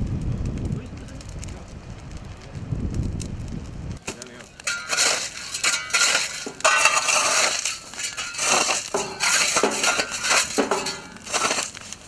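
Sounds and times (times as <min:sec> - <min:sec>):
fire crackling and hissing: 0:00.0 - 0:12.0
fire hose spraying: 0:04.0 - 0:12.0.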